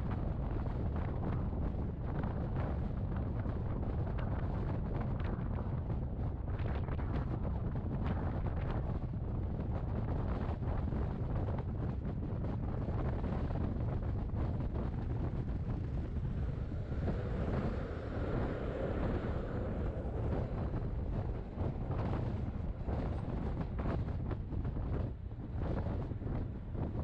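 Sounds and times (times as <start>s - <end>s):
wind buffeting microphone: 0.0s - 27.0s
train rumbling on track: 12.3s - 27.0s.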